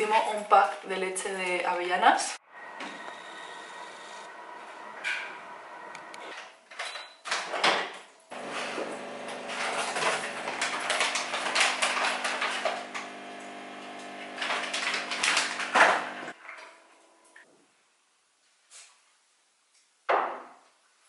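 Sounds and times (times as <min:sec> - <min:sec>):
plastic packaging crinkling: 0:09.4 - 0:13.2, 0:14.3 - 0:15.8.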